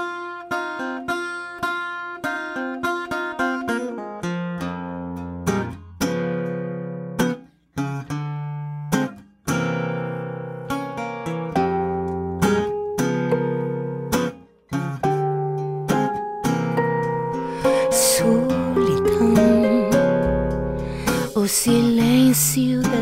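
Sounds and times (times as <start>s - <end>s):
acoustic guitar plucking: 0.0s - 23.0s.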